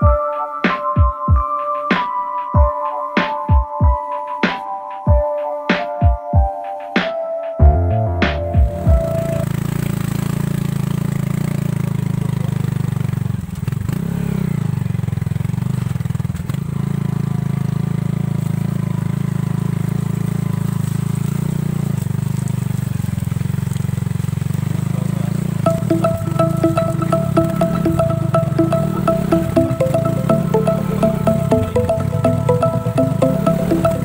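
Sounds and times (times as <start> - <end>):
small motorcycle engine running: 9.0 - 34.0.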